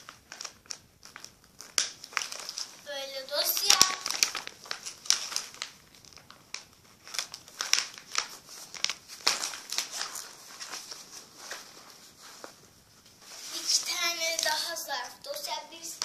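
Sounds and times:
plastic folders crinkling: 0:00.0 - 0:16.0.

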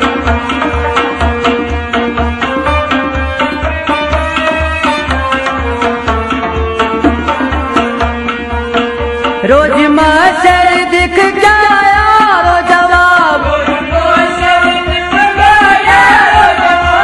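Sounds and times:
string and harmonium melody: 0:00.0 - 0:17.0
pot drum beating: 0:06.9 - 0:08.1
man singing: 0:09.4 - 0:17.0.

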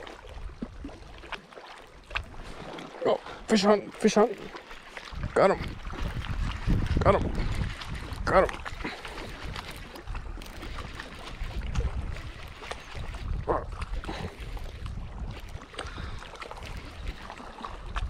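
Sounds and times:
wind rumble on microphone: 0:05.0 - 0:18.0.

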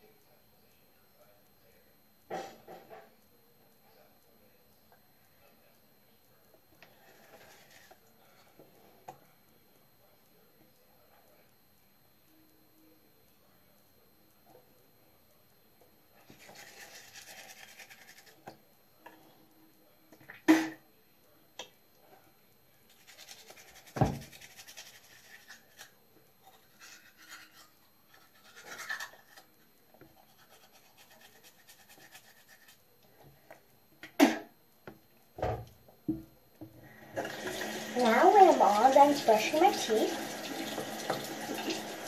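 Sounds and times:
toothbrush scrubbing teeth: 0:07.0 - 0:08.0, 0:16.2 - 0:18.6, 0:22.9 - 0:29.5, 0:30.1 - 0:32.8.

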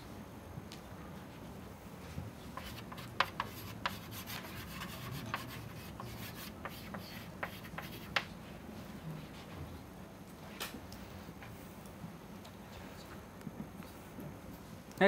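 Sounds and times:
chalk scratching on chalkboard: 0:02.5 - 0:08.3.

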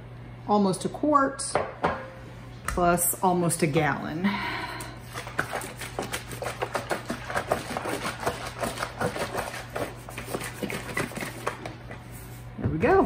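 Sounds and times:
liquid sloshing in plastic jug: 0:05.0 - 0:12.4.

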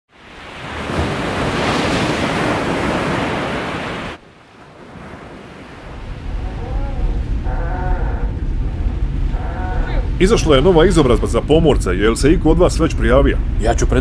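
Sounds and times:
sea waves: 0:00.1 - 0:14.0
wind rushing: 0:00.8 - 0:14.0
low rumble: 0:05.8 - 0:14.0.

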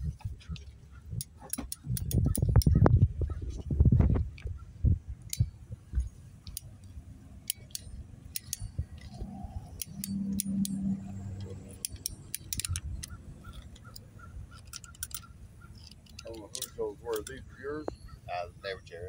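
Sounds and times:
low steady hum: 0:00.0 - 0:19.0
screwdriver clicks and scrapes: 0:01.2 - 0:02.8, 0:07.5 - 0:17.4.

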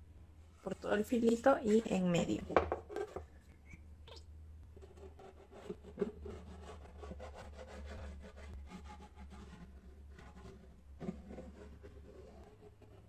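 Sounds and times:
glue bottle nozzle rubbing cardboard: 0:04.9 - 0:13.0.

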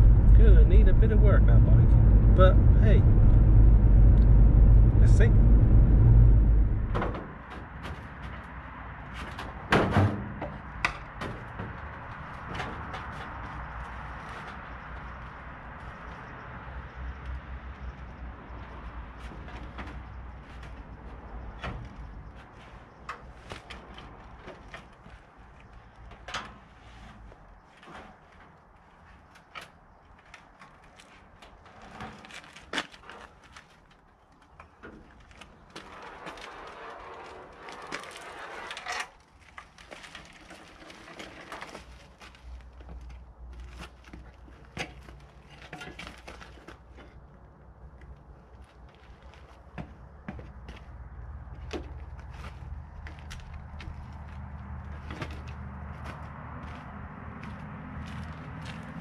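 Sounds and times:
motorcycle clunking in metal trailer: 0:09.2 - 0:13.2
motorcycle being wheeled creaking: 0:17.9 - 0:59.0.

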